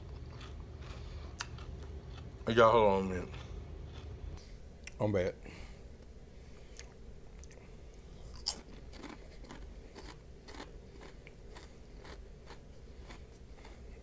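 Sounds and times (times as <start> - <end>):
crunchy snack chewing: 0.0 - 4.2, 8.2 - 14.0.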